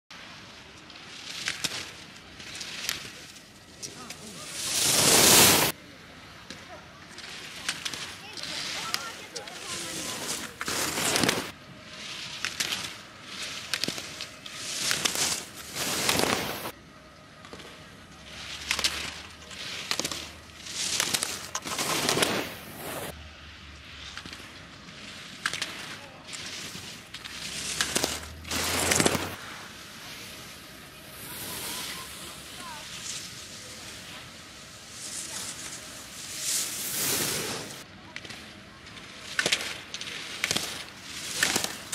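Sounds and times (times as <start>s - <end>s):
ski edges scraping snow: 0.3s - 5.8s, 7.1s - 16.8s, 17.4s - 23.2s, 23.9s - 38.5s, 39.2s - 41.9s.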